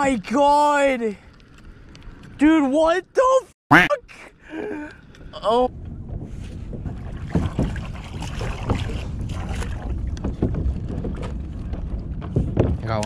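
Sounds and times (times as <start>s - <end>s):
wind rumbling on microphone: 4.8s - 13.0s
water slapping against kayak hull: 6.0s - 13.0s.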